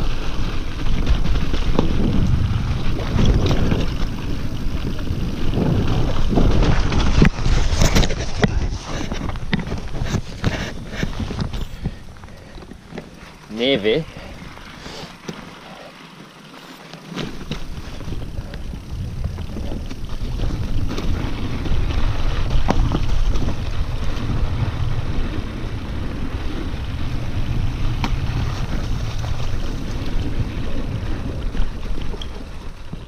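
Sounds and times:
wind buffeting microphone: 0.0s - 14.8s, 17.4s - 33.0s
bike knocking over rough ground: 0.2s - 25.8s, 26.9s - 33.0s.

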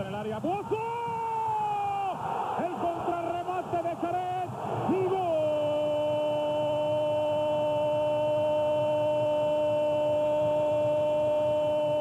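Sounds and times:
commentator shouting goal: 0.2s - 6.6s.

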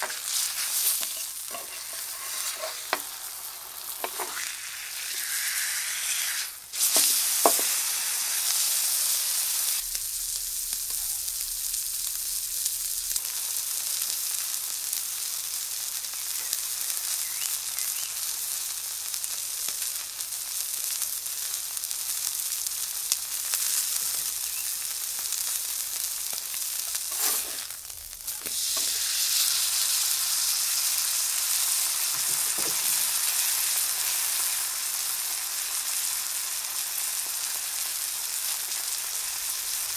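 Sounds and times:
steak sizzling on a griddle: 0.0s - 39.9s.

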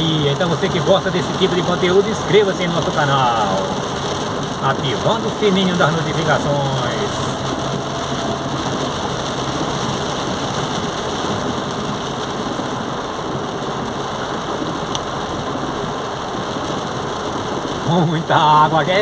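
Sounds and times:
heavy rain drumming on car roof: 0.0s - 19.0s.

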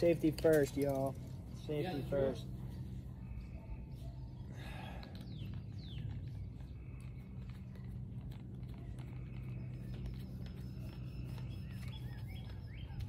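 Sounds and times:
steady low hum: 0.0s - 13.0s
bird chirps: 3.4s - 13.0s.

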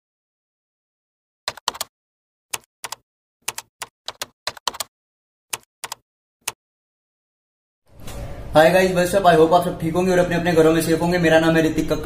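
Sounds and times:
keyboard key clicks: 2.6s - 4.9s.

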